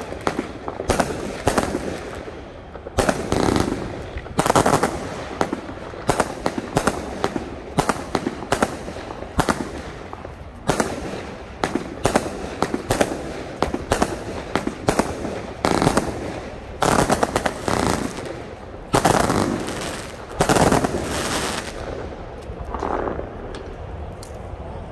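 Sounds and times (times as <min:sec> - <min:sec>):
firework shots launching: 0:00.0 - 0:23.8.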